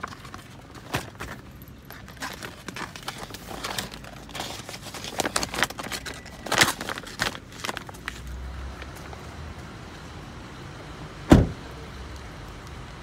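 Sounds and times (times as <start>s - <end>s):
plastic folder crinkling and clicking: 0.0s - 8.3s.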